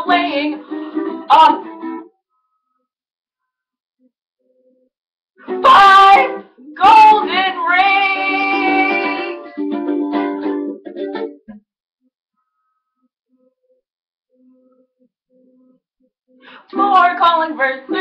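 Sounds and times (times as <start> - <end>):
woman singing: 0.0 - 1.7, 5.5 - 9.6, 16.4 - 18.0
strummed ukulele: 0.0 - 2.1, 5.4 - 11.6, 16.5 - 18.0.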